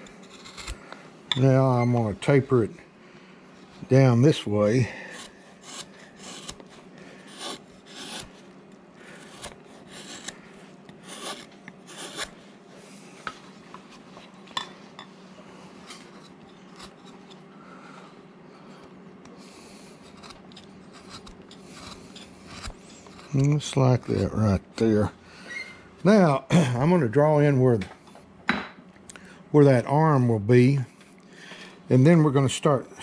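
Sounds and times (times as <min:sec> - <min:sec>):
gouge scraping through wood: 0:00.0 - 0:00.8, 0:05.0 - 0:08.4, 0:09.0 - 0:12.4, 0:15.6 - 0:17.4, 0:19.5 - 0:24.4
faint steady hum: 0:00.0 - 0:33.0.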